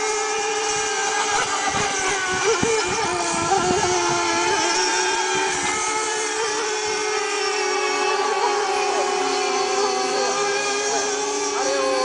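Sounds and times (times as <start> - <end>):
model boat engines whining: 0.0 - 12.0.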